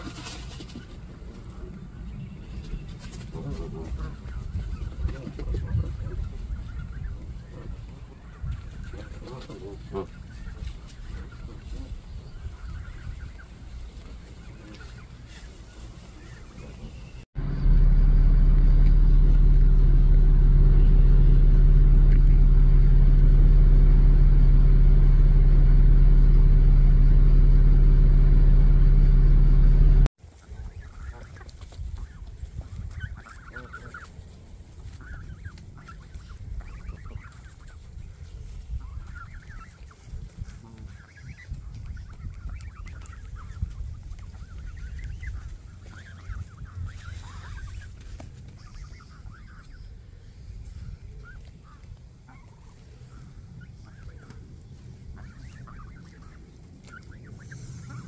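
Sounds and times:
geese and goslings calling: 0.0s - 58.0s
loud low drone: 17.4s - 30.1s.

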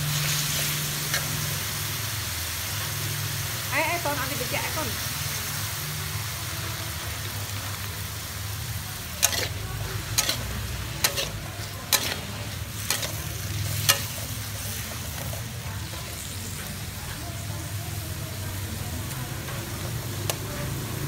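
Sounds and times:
food sizzling in a wok: 0.0s - 21.0s
metal spatula knocking wok: 9.1s - 16.7s.

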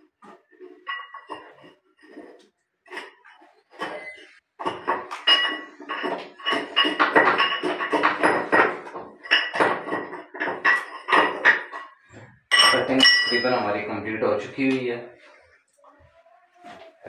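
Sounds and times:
metal tool scraping in ceramic: 0.0s - 4.4s.

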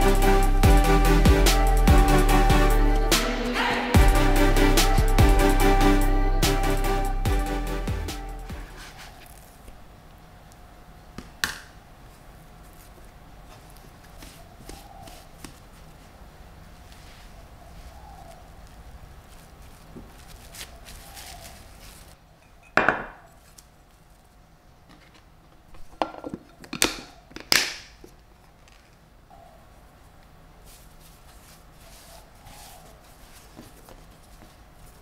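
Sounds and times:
hands rustling dough: 8.6s - 9.8s, 12.0s - 22.2s, 30.0s - 35.0s.

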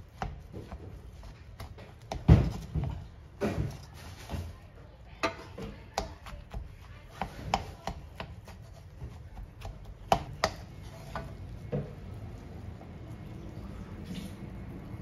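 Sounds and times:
spatula knocking against wok: 5.2s - 11.4s.

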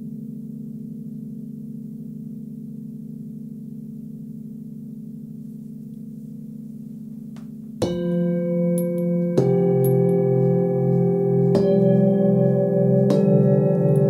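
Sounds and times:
singing bowl struck: 7.8s - 14.0s
singing bowls ringing: 7.8s - 14.0s.

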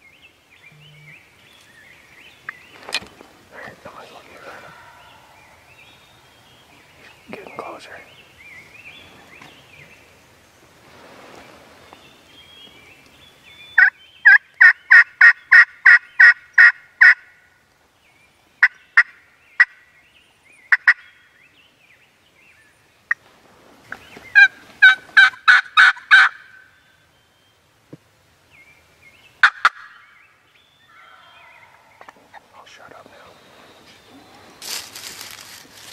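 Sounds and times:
turkey yelping: 24.4s - 26.6s.

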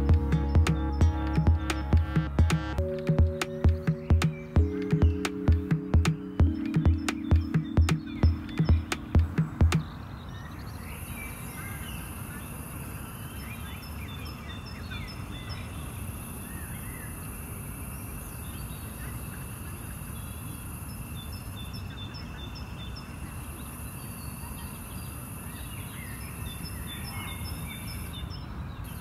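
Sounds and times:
steady low rumble: 0.0s - 9.9s
birds chirping: 0.0s - 17.4s.

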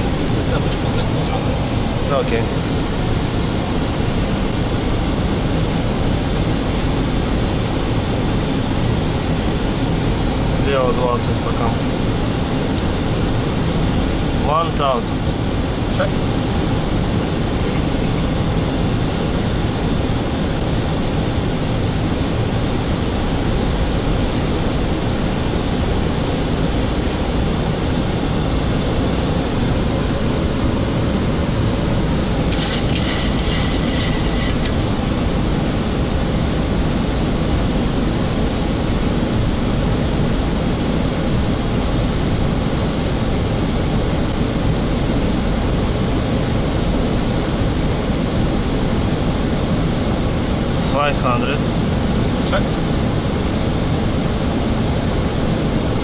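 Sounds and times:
air-conditioning noise: 0.0s - 56.0s
pulsing high electronic tone: 32.5s - 34.8s.

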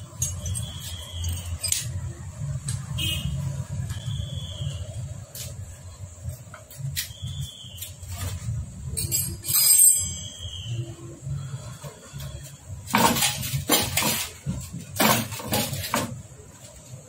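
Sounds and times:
metal engine parts clinking: 0.0s - 2.2s, 8.9s - 10.5s, 12.8s - 16.2s.

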